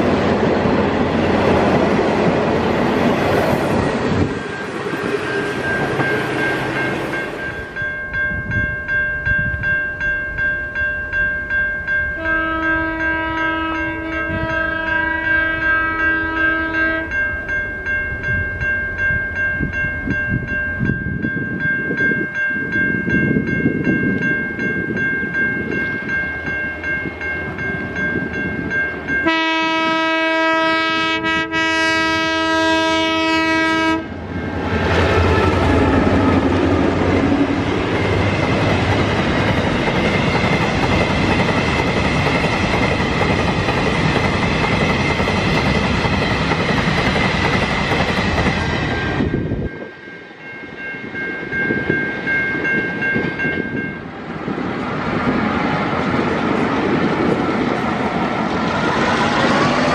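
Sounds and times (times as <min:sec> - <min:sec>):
diesel locomotive engine rumble: 0:00.0 - 0:10.4, 0:22.1 - 0:59.9
level-crossing bell ringing: 0:04.4 - 0:29.8, 0:49.1 - 0:54.2
train horn blast: 0:12.2 - 0:17.2, 0:29.2 - 0:34.1.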